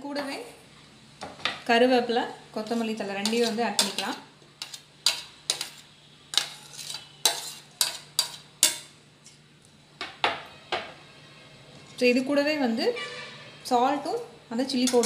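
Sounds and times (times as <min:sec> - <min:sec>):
metal spoon scraping bowl: 0:02.6 - 0:08.9, 0:14.8 - 0:15.0.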